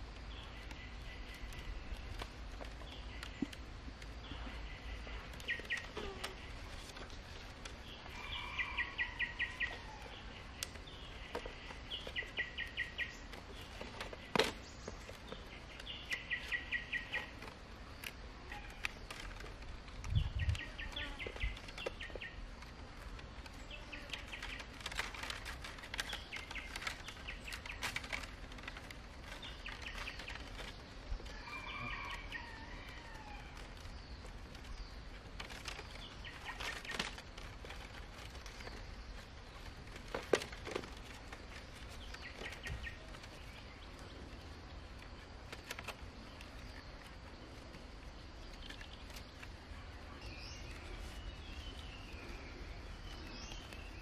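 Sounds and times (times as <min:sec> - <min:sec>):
bamboo strips clicking and rustling: 0:00.0 - 0:54.0
steady outdoor hiss: 0:00.0 - 0:54.0.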